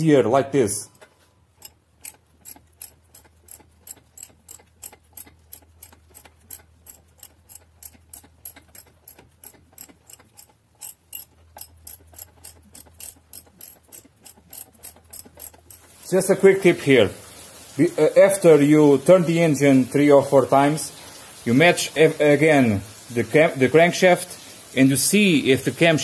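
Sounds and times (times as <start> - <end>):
ratchet wrench clicking: 1.0 - 16.0.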